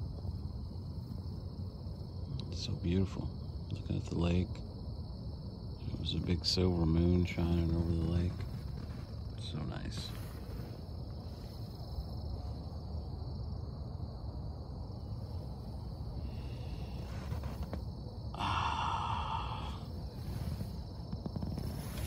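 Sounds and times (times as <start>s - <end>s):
microphone handling rumble: 15.9s - 18.1s, 19.6s - 22.0s
short breathy rush: 16.2s - 17.8s, 18.4s - 22.0s.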